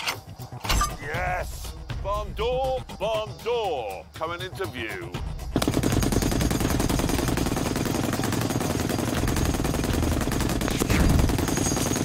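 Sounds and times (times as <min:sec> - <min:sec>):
machine gun automatic burst: 0:05.6 - 0:12.0.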